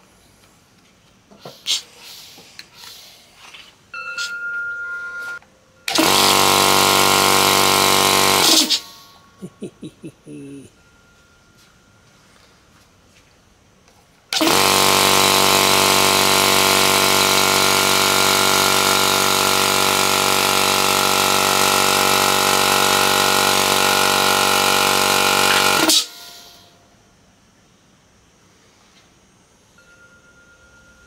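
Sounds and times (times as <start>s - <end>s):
air compressor running: 5.9s - 9.2s, 14.3s - 26.8s.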